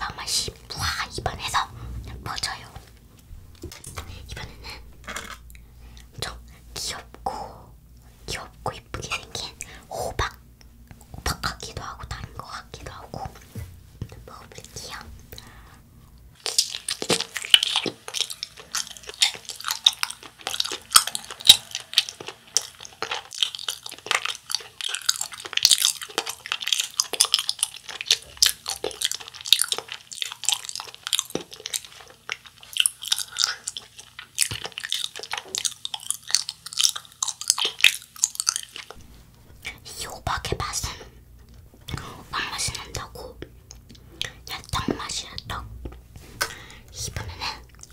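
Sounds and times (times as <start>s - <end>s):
chewing with wet mouth clicks: 16.4s - 39.0s, 42.7s - 46.6s, 47.6s - 47.9s.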